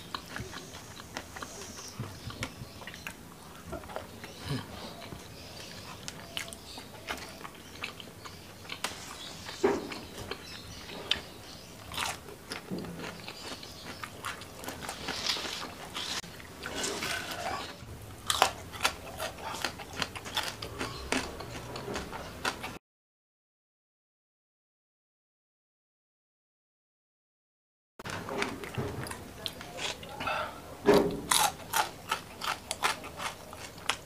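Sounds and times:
chewing and crunching fish: 0.0s - 22.8s, 28.4s - 30.4s, 31.2s - 34.0s.

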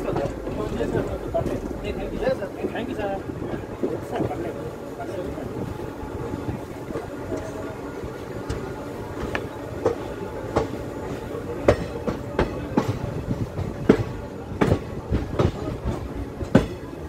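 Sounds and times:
low train rumble: 0.0s - 17.0s
train wheels clacking over rail joints: 9.2s - 17.0s.

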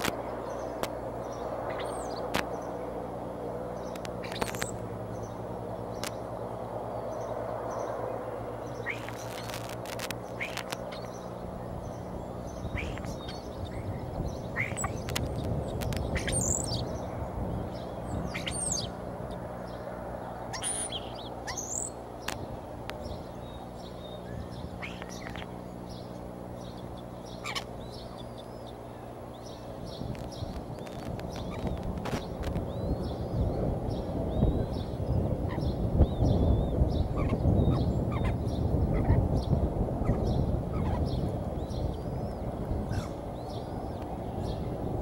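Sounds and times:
steady low hum: 0.0s - 45.0s
high thin bird chirps: 8.8s - 17.0s
clicks and rustles: 9.0s - 11.1s, 30.1s - 32.7s.

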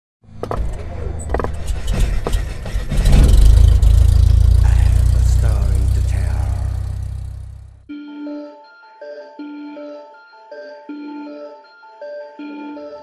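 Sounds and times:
deep steady rumble: 0.6s - 7.9s
sharp hits: 1.4s - 7.9s.

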